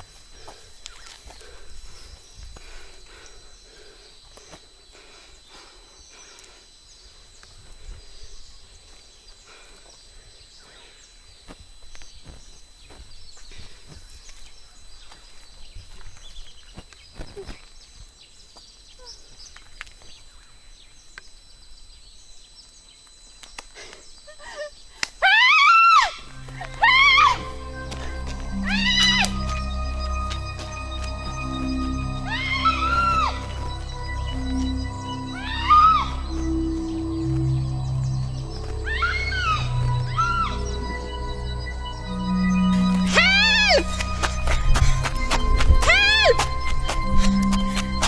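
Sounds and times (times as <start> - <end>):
soft footsteps on dirt: 0.0 - 2.8, 11.3 - 18.8, 26.3 - 31.8, 36.4 - 38.9, 43.8 - 48.0.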